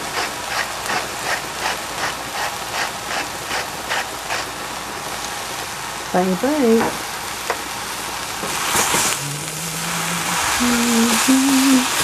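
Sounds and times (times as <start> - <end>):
seasoning grinder grinding: 0.0 - 4.5
vegetables sizzling in a pan: 0.0 - 12.0.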